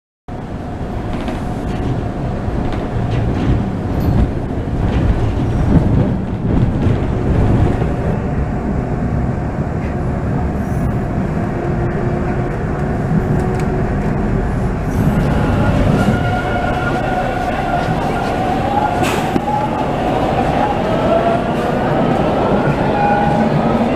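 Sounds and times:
subway train wheels rumbling: 0.3s - 23.9s
train whining tones: 9.8s - 23.9s.

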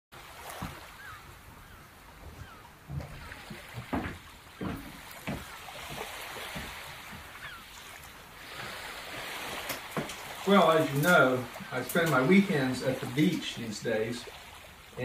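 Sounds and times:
surf washing: 0.2s - 15.0s
dull thumps: 2.2s - 7.3s.

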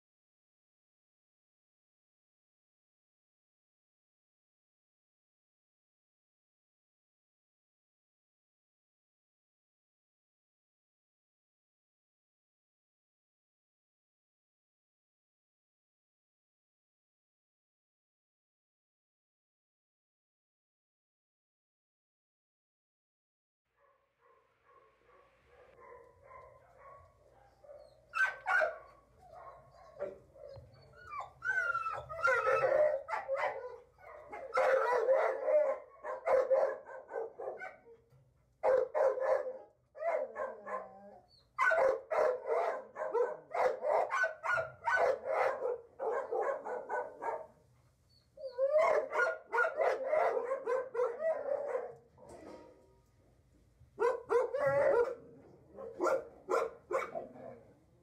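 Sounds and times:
dog barking: 23.8s - 38.0s, 38.6s - 47.6s, 48.6s - 52.6s, 54.0s - 57.7s.

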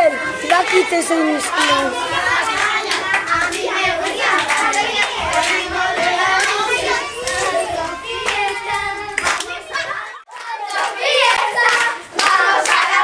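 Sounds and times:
children singing and calling: 0.0s - 13.0s
hand claps: 2.5s - 7.6s, 8.2s - 9.6s, 10.3s - 13.0s.

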